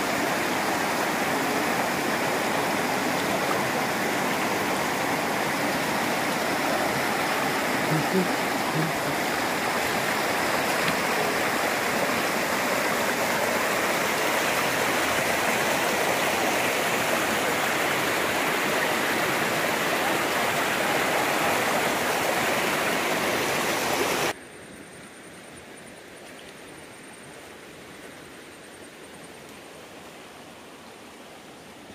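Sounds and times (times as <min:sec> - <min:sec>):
river water roaring through weir: 0:00.0 - 0:24.4.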